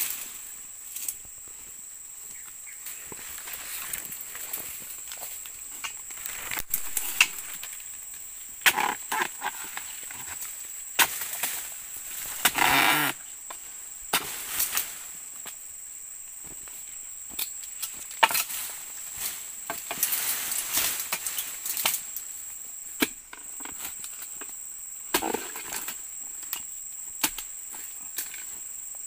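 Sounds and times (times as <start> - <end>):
high insect drone: 0.0 - 29.0
chisel chopping palm fronds: 11.0 - 11.6, 12.2 - 13.2, 14.1 - 14.9, 18.2 - 18.6.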